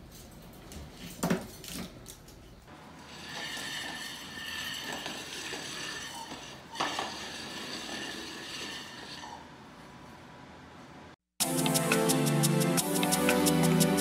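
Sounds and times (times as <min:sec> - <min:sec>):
frying pan scraping on floor: 0:03.0 - 0:09.5.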